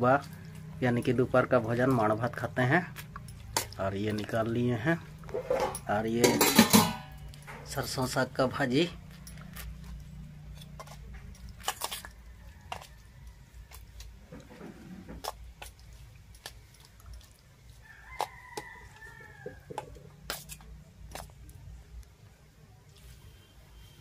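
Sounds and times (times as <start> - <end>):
spoon clinking on steel bowls: 5.2 - 8.1.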